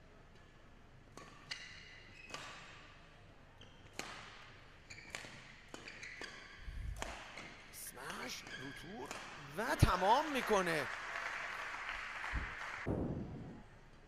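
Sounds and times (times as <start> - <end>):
shoes squeaking on court floor: 1.2 - 2.9, 3.6 - 9.4
rackets striking shuttlecock: 5.1 - 8.2, 9.0 - 9.5.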